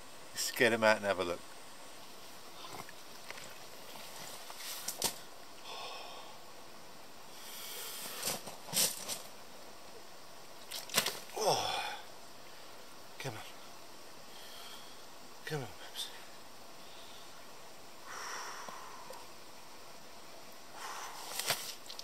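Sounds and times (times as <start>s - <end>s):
fish thrashing slaps: 10.7s - 11.3s.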